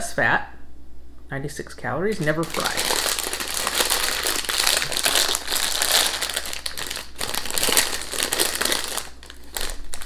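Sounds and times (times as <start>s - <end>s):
plastic crisp packet crinkling: 2.1s - 10.0s.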